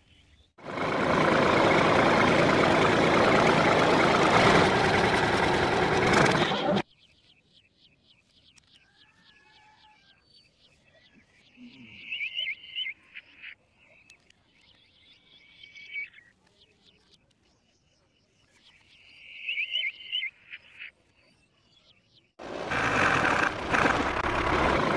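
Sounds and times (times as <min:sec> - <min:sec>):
loud steady engine: 0:00.6 - 0:06.8, 0:22.4 - 0:24.9.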